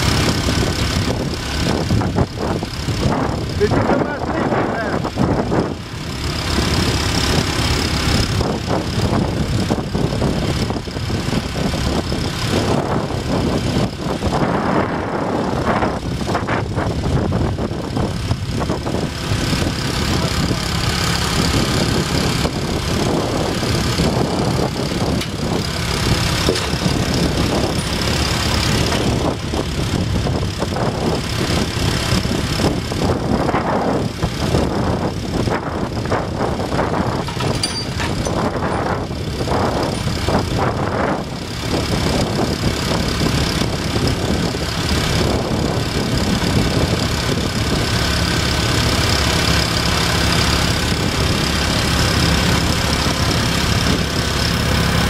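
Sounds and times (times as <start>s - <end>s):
petrol engine running: 0.0s - 55.0s.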